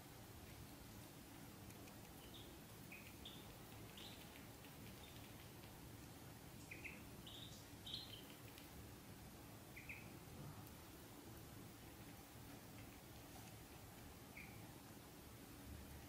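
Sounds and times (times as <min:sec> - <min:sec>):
ducklings peeping: 0:02.0 - 0:05.7, 0:06.5 - 0:08.7, 0:09.7 - 0:10.3, 0:12.6 - 0:14.7.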